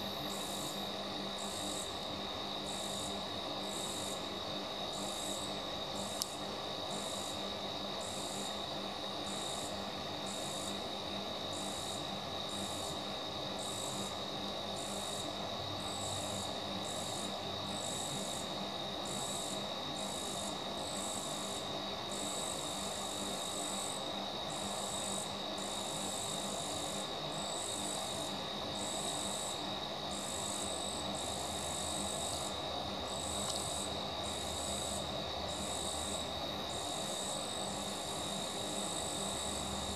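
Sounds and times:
insect trill: 0.0 - 39.9
small click: 6.2 - 6.4, 33.4 - 33.6.

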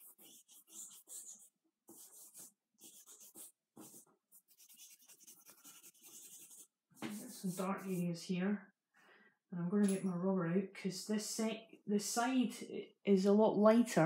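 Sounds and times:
charcoal scratching on paper: 0.0 - 8.0.

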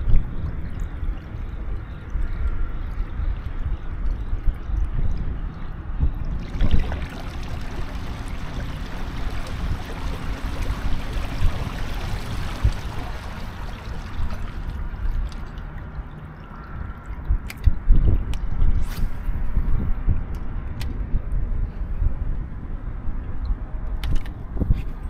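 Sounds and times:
low rumble: 5.9 - 15.5
water rushing along kayak hull: 6.3 - 15.8.

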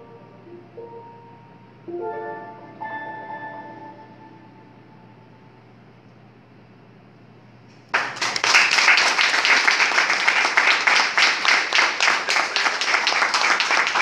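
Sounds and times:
audience applauding: 7.9 - 14.0.

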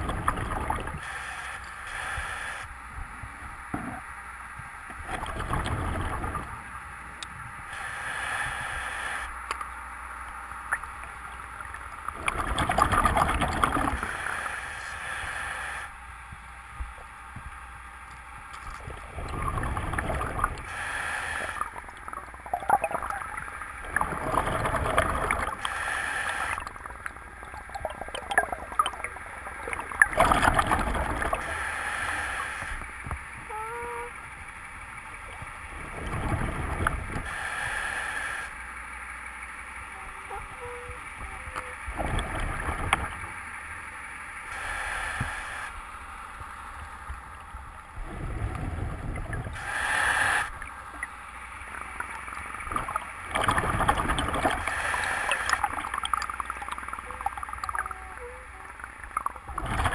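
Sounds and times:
bubbles gurgling: 0.0 - 1.1, 5.0 - 6.6, 12.1 - 14.4, 18.6 - 31.7, 35.0 - 37.4, 40.3 - 43.3, 50.4 - 59.9
diver breathing through regulator: 1.0 - 2.7, 7.7 - 9.4, 13.8 - 16.0, 19.0 - 21.9, 24.1 - 26.8, 31.2 - 32.9, 36.0 - 38.6, 44.5 - 45.9, 48.0 - 50.7, 53.5 - 55.8.

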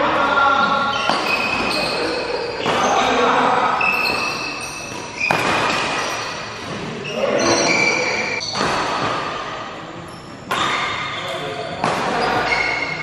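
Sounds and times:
shoes squeaking on court: 0.8 - 8.6, 10.1 - 13.0
rackets hitting shuttlecock: 0.9 - 3.1, 3.8 - 7.0, 8.4 - 9.4, 10.4 - 13.0.

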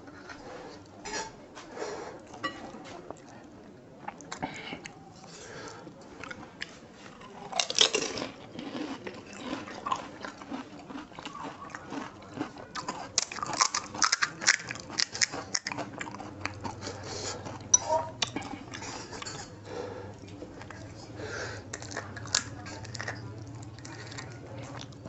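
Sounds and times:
crunching of crisp shells: 6.2 - 19.4, 21.7 - 25.0.

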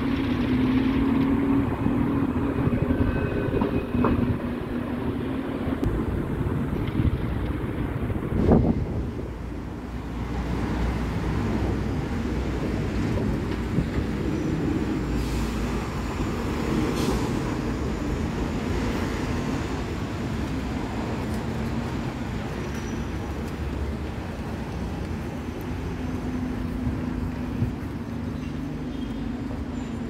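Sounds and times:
bus and car engines rumbling: 0.0 - 30.0
short air brake hisses: 15.1 - 15.8, 16.9 - 17.5.

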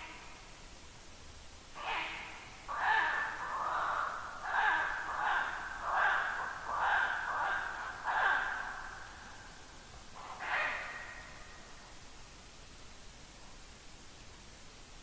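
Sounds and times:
owl barking: 1.8 - 9.1, 10.2 - 11.6.

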